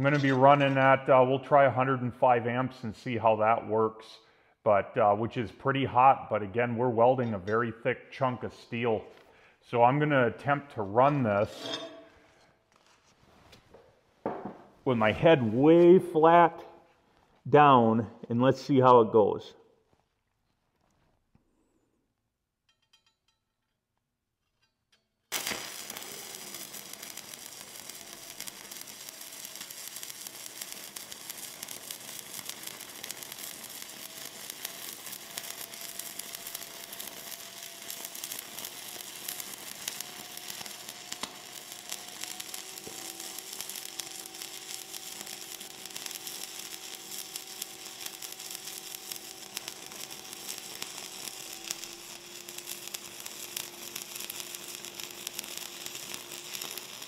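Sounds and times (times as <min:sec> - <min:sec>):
welding arc crackling sizzle: 0:25.3 - 0:57.0.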